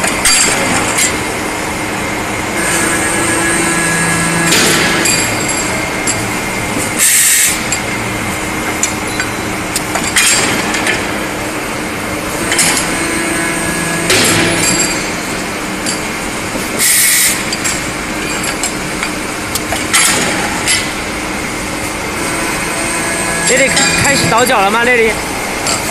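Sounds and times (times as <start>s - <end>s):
cutting machine humming: 1.3s - 10.0s, 10.6s - 15.6s, 21.6s - 25.6s
air hiss bursts: 7.0s - 7.6s.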